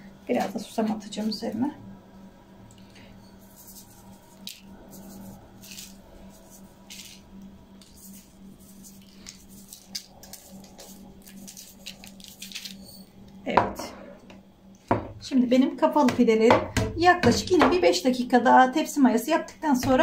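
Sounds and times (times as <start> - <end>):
steady low hum: 0.0 - 20.0
seeds sprinkled onto dough: 3.4 - 13.0.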